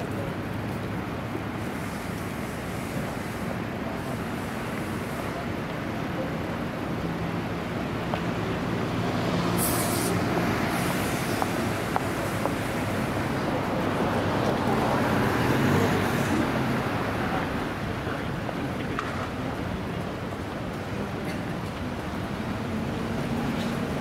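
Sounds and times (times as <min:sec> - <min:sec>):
road traffic noise: 0:00.0 - 0:24.0
short hiss: 0:09.6 - 0:13.1.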